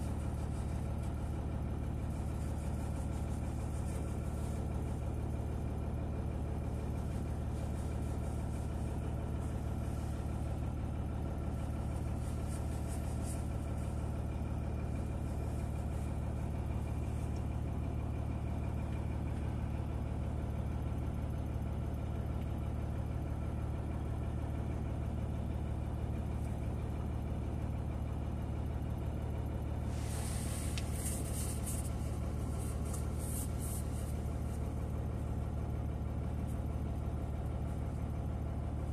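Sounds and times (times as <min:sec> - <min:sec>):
low machine hum: 0:00.0 - 0:38.9
rustling hiss: 0:29.9 - 0:34.6.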